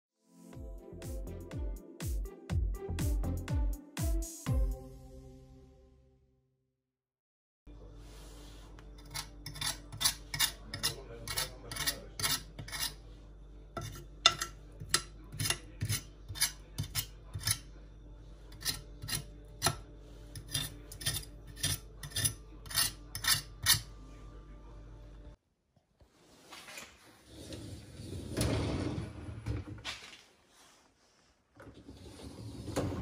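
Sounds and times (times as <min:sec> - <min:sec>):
fork scraping glass dish: 0:09.0 - 0:13.0, 0:13.8 - 0:17.7, 0:18.5 - 0:23.9.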